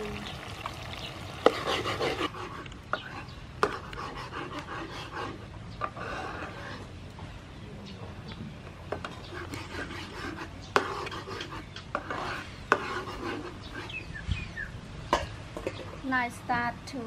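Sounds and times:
spatula scraping sauce in a wok: 1.4 - 6.9, 9.0 - 14.1.

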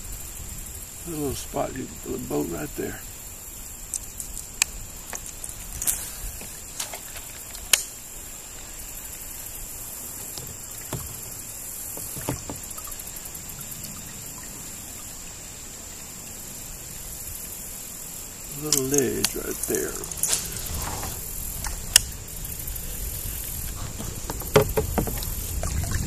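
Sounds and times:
steady soft hiss: 0.0 - 25.9
kayak gear knocks and clicks: 10.2 - 13.0, 23.6 - 25.8.

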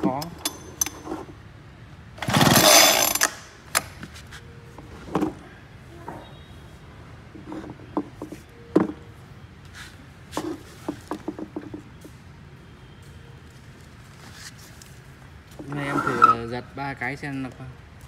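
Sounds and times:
recoil starter cord pulled: 2.2 - 3.9.

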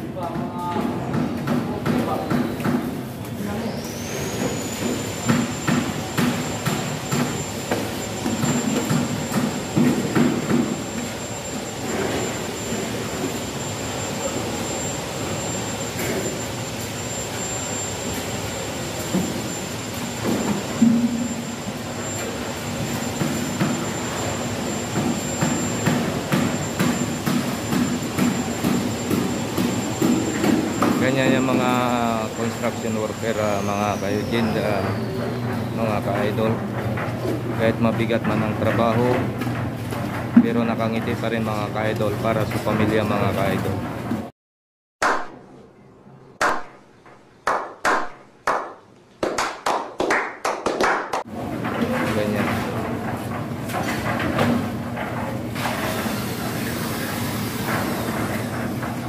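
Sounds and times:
machine running with low hum: 0.0 - 44.3, 51.3 - 59.0
thin high whine: 3.4 - 36.6
hand claps: 46.4 - 46.8, 47.4 - 51.3.

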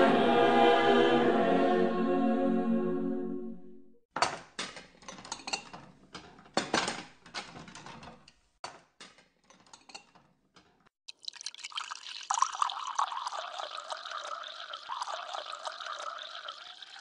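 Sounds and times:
tableware clicking and clattering: 4.2 - 10.9.

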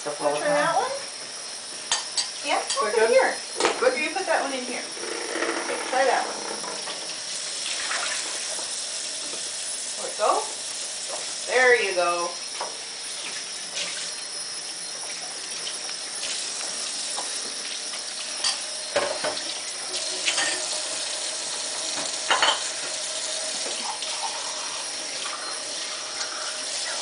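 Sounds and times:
dishes clinking: 1.9 - 3.0, 18.4 - 19.4, 20.0 - 20.8, 21.9 - 23.0
faucet running into metal sink: 4.9 - 27.0.

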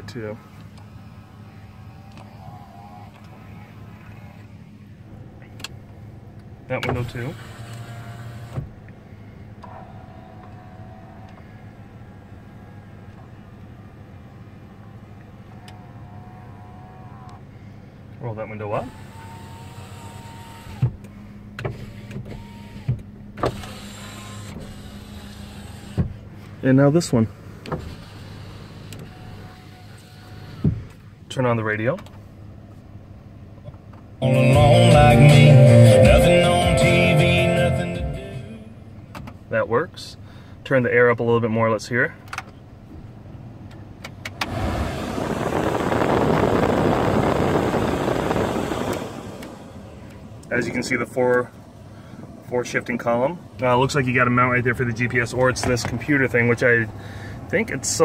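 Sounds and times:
power window motor whining: 6.8 - 17.4, 18.5 - 26.3, 27.5 - 31.0, 44.3 - 50.7
air rushing from vents: 44.2 - 58.0.

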